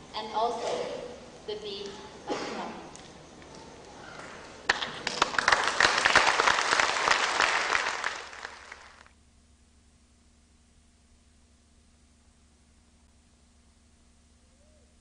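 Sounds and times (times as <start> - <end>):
audience applauding: 4.6 - 9.1.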